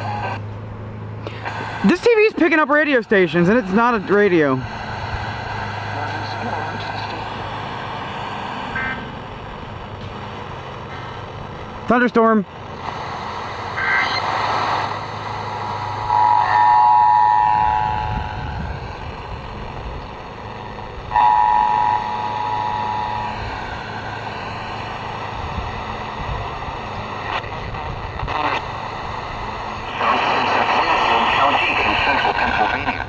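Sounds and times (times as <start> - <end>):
tv static hiss: 0.0 - 0.4, 1.4 - 33.0
steady chord of tones: 14.9 - 27.2
wind rumble on microphone: 16.8 - 21.2, 25.2 - 29.9.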